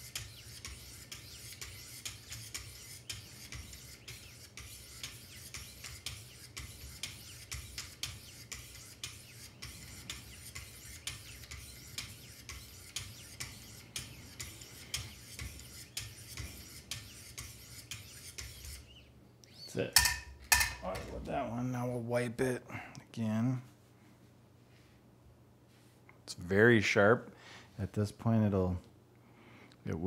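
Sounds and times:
sharpener scraping knife edge: 0.0 - 18.9.

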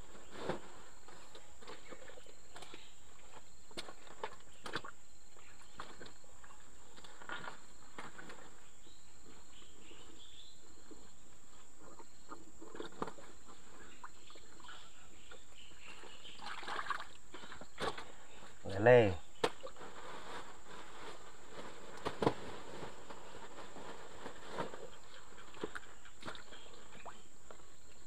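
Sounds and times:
insects chirping and buzzing: 0.0 - 28.0
soft rustles and knocks: 19.4 - 26.6.

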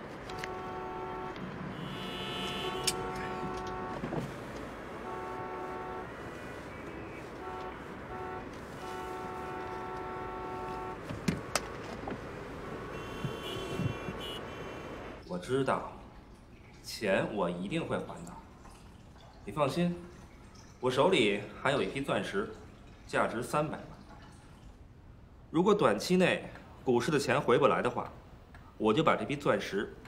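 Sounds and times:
car horns held long: 0.0 - 15.2
traffic noise: 0.0 - 30.0.

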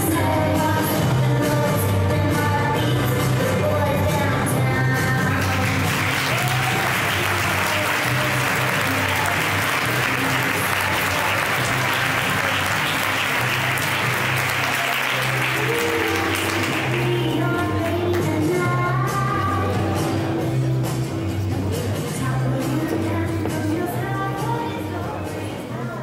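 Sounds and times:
audience applauding: 5.3 - 17.4.

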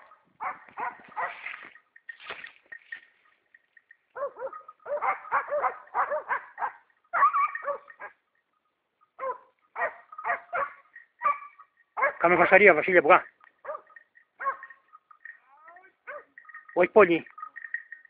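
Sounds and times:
dog yelping barks: 0.0 - 1.5, 4.1 - 8.2, 9.2 - 12.4, 13.6 - 17.9.

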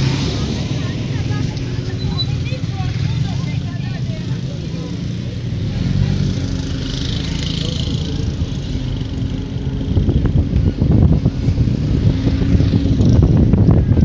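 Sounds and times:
vehicle engine and road rumble: 0.0 - 14.0
wind buffeting microphone: 7.3 - 14.0.

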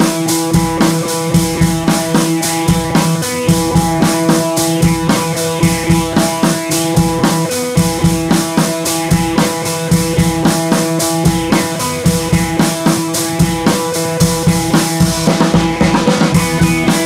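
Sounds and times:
drum kit beat: 0.0 - 17.0
held instrumental notes: 0.0 - 17.0.

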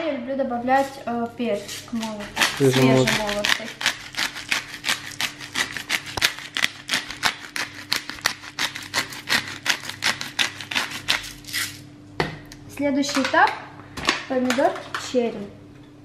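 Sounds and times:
pepper mill grinding: 1.7 - 11.8.

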